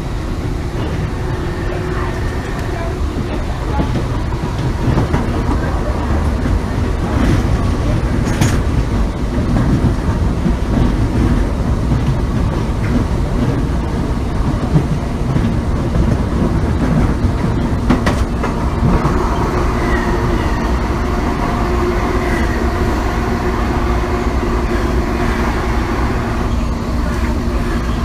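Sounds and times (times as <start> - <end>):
train wheels rumbling on rail: 0.0 - 28.0
traction motor whine: 0.7 - 3.7.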